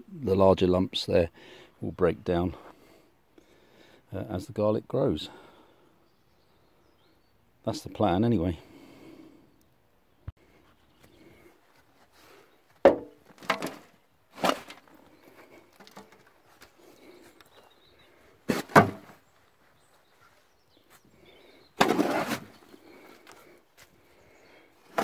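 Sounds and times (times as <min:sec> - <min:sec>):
sharp knocks and thuds: 0:12.8 - 0:13.8, 0:18.5 - 0:19.2.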